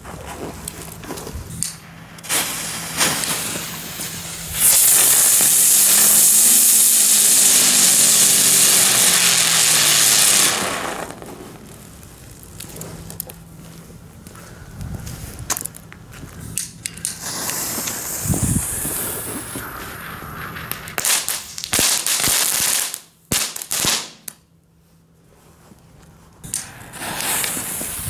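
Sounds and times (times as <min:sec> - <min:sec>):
firework spitting: 0:01.4 - 0:13.2, 0:16.5 - 0:24.3, 0:26.4 - 0:28.0
firework high hiss: 0:01.5 - 0:12.8, 0:16.5 - 0:24.3, 0:26.4 - 0:28.0.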